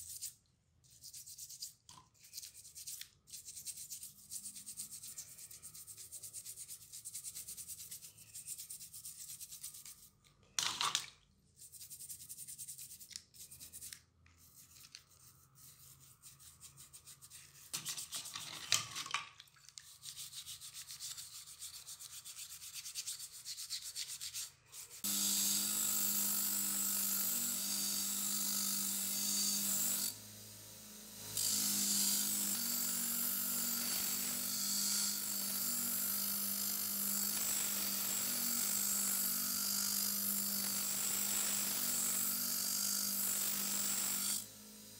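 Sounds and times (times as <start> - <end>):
brushes scrubbing metal in water: 11.6 - 25.0.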